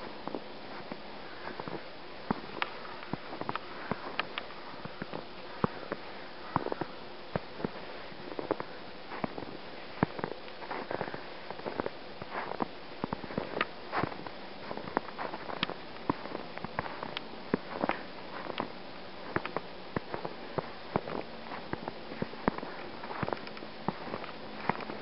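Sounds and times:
faint steady hiss: 0.0s - 25.0s
footsteps crunching in snow: 0.0s - 25.0s.

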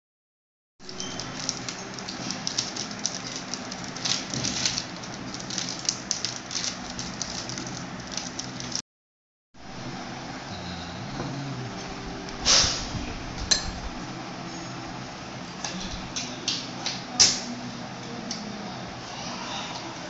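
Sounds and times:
plastic packet crinkling: 0.8s - 8.8s
low hum: 9.6s - 16.1s.

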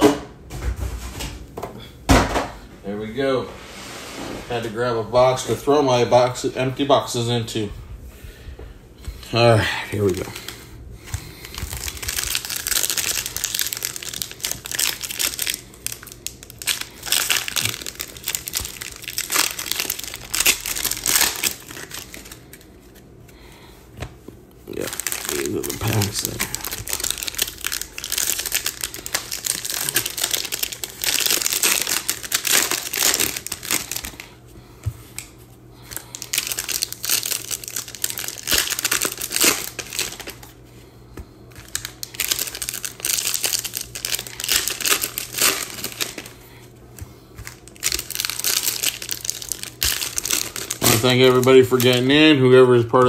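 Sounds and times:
plastic wrapping crinkling and tearing: 9.9s - 23.0s, 24.7s - 34.4s, 35.0s - 40.6s, 41.5s - 53.0s.

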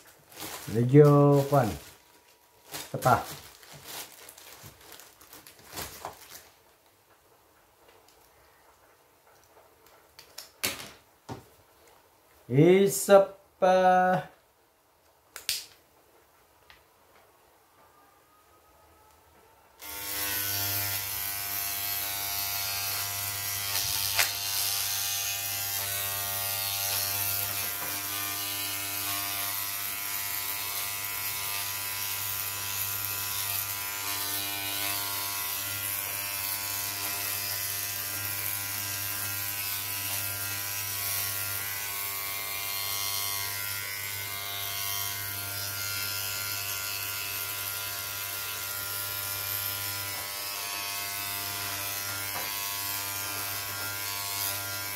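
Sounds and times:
electric hair clippers buzzing: 19.8s - 54.9s.

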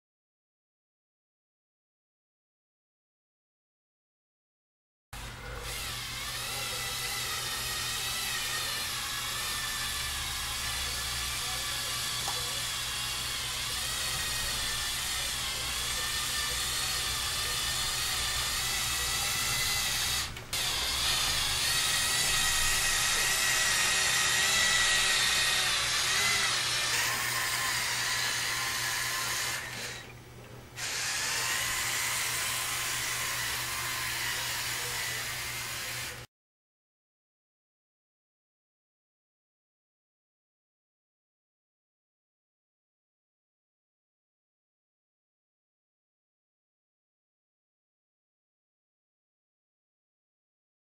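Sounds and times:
toy truck motor whining: 5.2s - 30.2s, 30.8s - 36.3s.

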